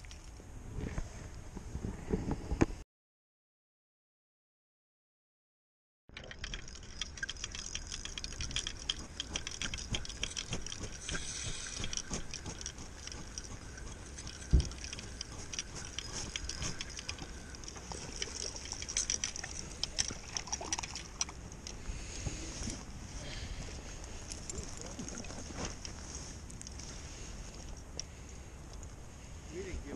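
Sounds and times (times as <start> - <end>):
fishing reel ticking: 6.2 - 21.6.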